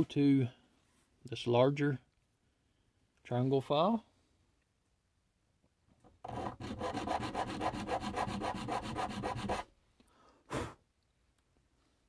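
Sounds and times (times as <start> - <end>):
file rasping on brass: 6.3 - 9.7.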